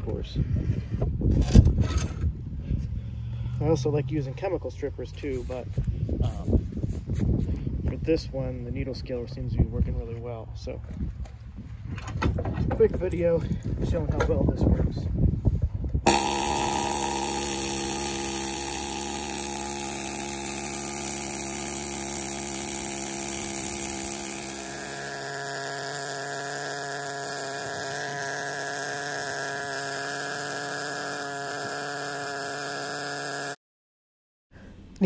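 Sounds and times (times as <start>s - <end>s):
needle scaler buzzing on metal: 16.1s - 33.6s.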